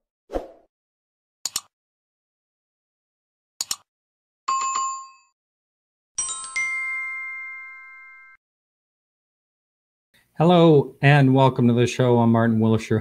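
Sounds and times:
double mouse click: 1.5 - 1.7
multi-tone chime: 6.2 - 8.4.

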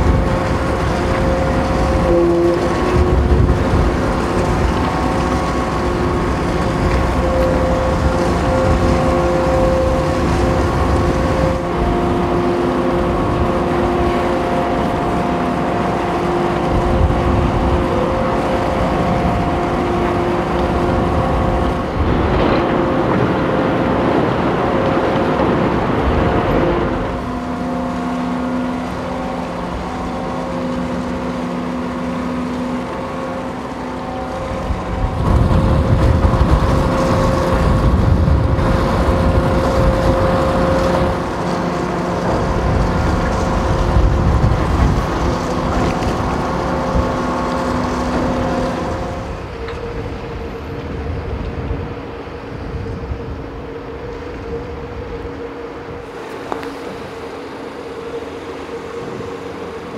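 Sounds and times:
ferry diesel engines droning: 0.0 - 59.9
rushing churning water: 0.0 - 59.9.

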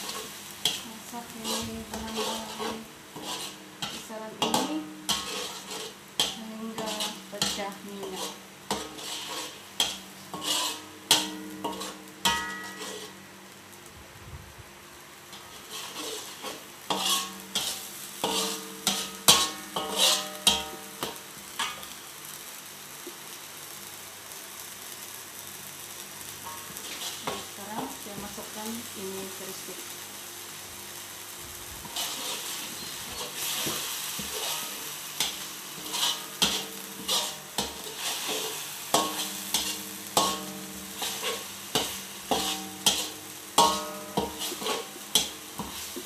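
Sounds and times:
oil sizzling: 0.0 - 14.0, 14.6 - 46.0
metal utensil scraping a pot: 1.4 - 13.1, 15.6 - 20.8, 31.8 - 45.7.

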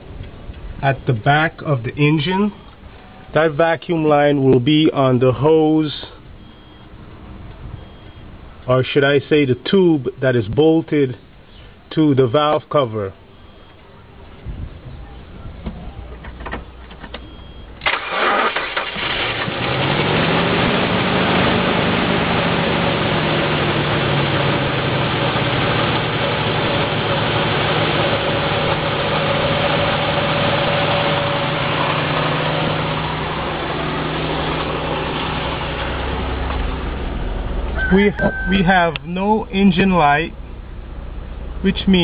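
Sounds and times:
car engine cranking and idling: 0.0 - 9.5, 13.1 - 42.0.

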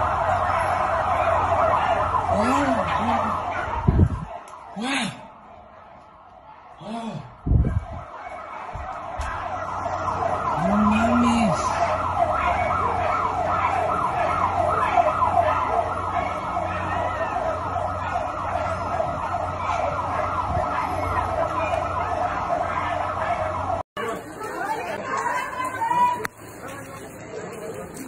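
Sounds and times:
siren sweeping in pitch: 0.0 - 23.8
person calling out: 10.6 - 11.7.

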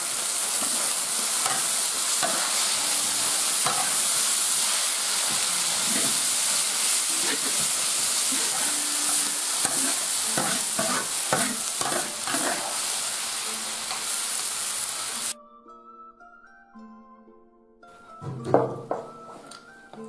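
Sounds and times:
food sizzling in a wok: 0.0 - 15.4
metal spatula scraping a wok: 0.1 - 13.2.

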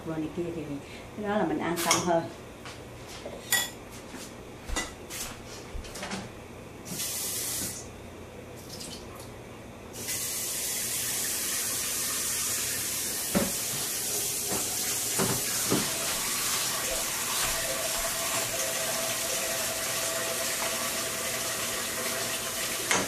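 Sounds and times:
kitchen tap running water: 10.0 - 23.0.

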